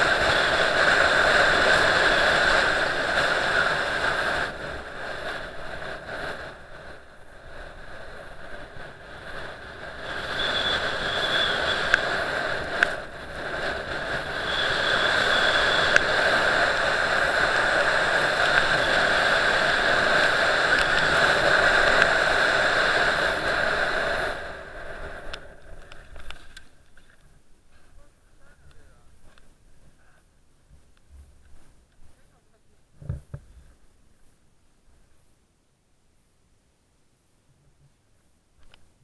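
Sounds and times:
wind on microphone: 0:00.0 - 0:26.4
skis scraping over snow: 0:00.0 - 0:28.9
sharp ticks: 0:10.3 - 0:13.1.

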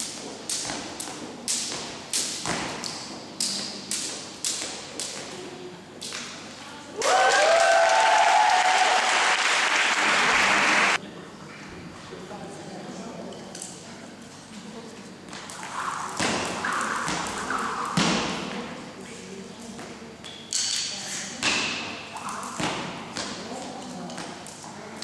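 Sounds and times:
jump rope slapping floor: 0:00.0 - 0:06.4, 0:15.3 - 0:18.8, 0:19.8 - 0:25.0
crowd clapping and cheering: 0:07.0 - 0:11.0.

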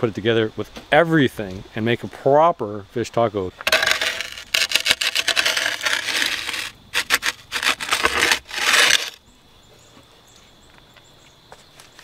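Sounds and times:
pizza peel scraping stone floor: 0:03.6 - 0:09.2.

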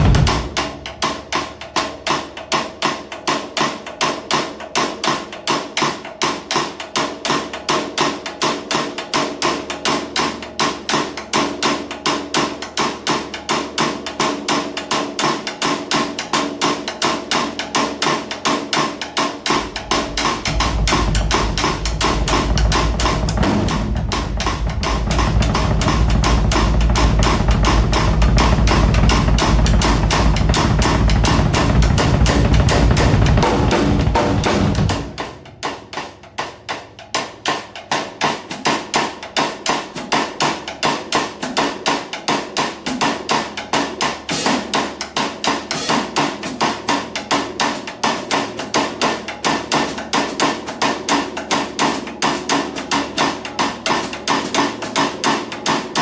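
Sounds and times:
deep bass beat: 0:00.0 - 0:01.8, 0:19.4 - 0:35.6
woody percussive hits: 0:00.0 - 0:56.0.

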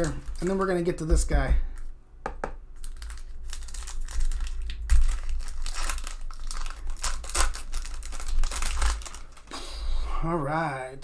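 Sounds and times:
foil wrapper tearing and crinkling: 0:00.0 - 0:00.6, 0:02.8 - 0:09.5.

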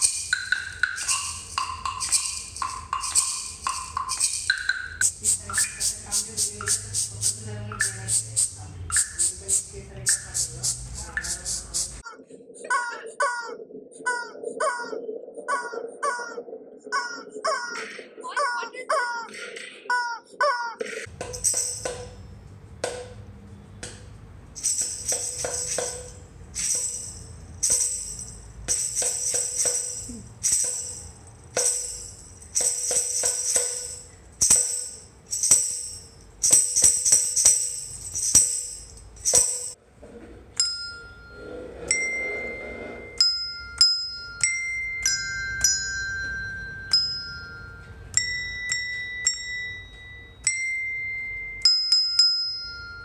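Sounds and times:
desk bells ringing notes: 0:00.0 - 0:07.0, 0:21.1 - 0:23.2, 0:24.6 - 0:39.8, 0:40.6 - 0:53.0
tambourine jingles shaken: 0:00.0 - 0:12.0, 0:21.1 - 0:22.8, 0:24.5 - 0:39.8.

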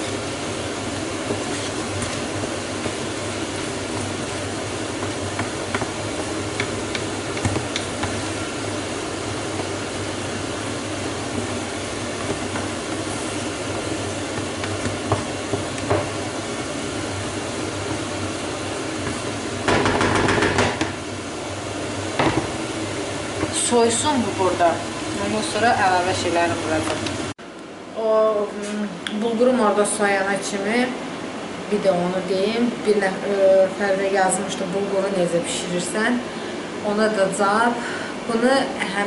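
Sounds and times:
food hissing in a frying pan: 0:00.0 - 0:19.7
spatula scraping and tapping pan: 0:01.0 - 0:04.3, 0:04.9 - 0:08.3, 0:11.3 - 0:16.2.

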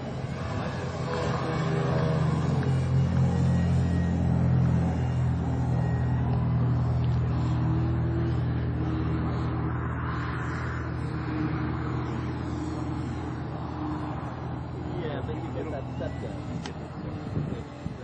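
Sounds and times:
model plane engine running: 0:00.0 - 0:18.0.

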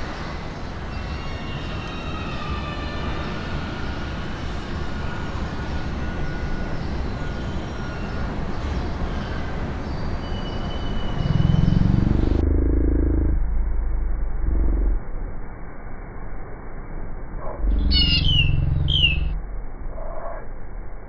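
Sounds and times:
faint high whistling tones: 0:01.0 - 0:11.8
noisy rumble: 0:11.1 - 0:21.0.

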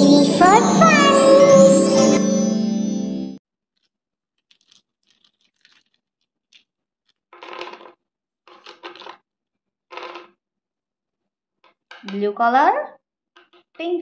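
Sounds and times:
small pieces rattling: 0:03.6 - 0:09.2, 0:09.9 - 0:10.4
small pieces clicking: 0:03.7 - 0:09.2, 0:09.9 - 0:10.4, 0:13.4 - 0:13.8.

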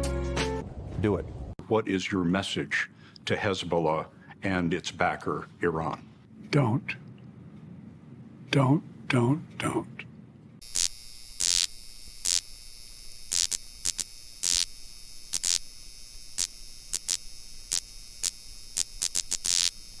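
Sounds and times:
electronic static hiss: 0:10.6 - 0:20.0.

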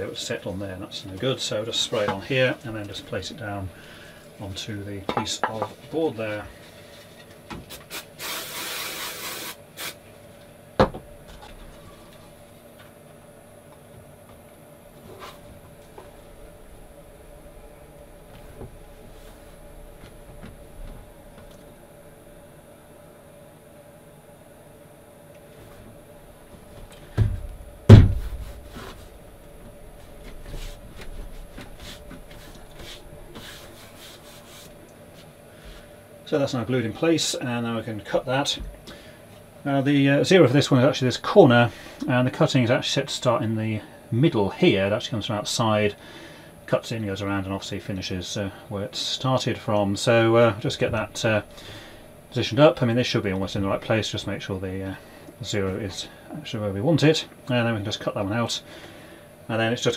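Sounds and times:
aerosol spray hissing: 0:07.9 - 0:10.0
dull thumps of board: 0:10.8 - 0:11.0, 0:27.1 - 0:28.7.

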